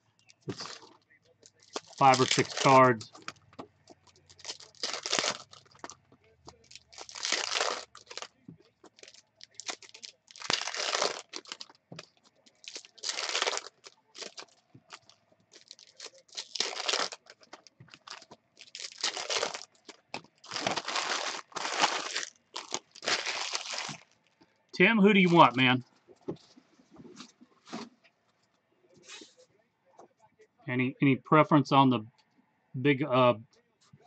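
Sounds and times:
foil wrappers tearing and crinkling: 0.5 - 3.3, 4.0 - 8.3, 8.9 - 24.1.

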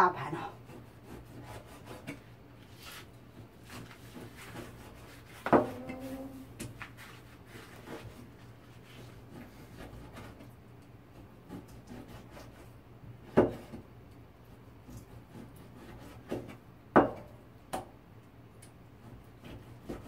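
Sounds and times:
cleaver knocking on cutting board: 5.4 - 5.9, 13.3 - 13.7.

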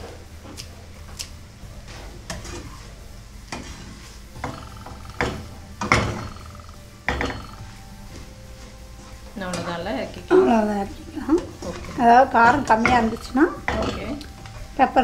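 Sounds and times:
steady low hum: 0.0 - 15.0
spatula scraping frying pan: 1.9 - 7.6.

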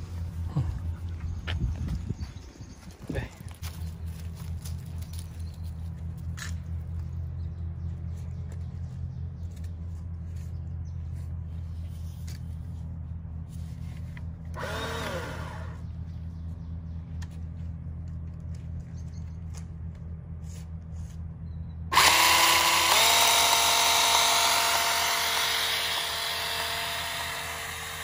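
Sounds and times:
steady low hum: 0.0 - 28.0
electric pole saw spinning up: 14.5 - 15.8, 21.9 - 28.0.

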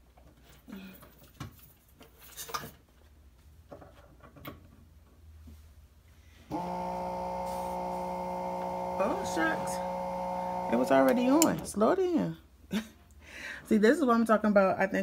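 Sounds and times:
electric motor humming: 6.5 - 11.7.

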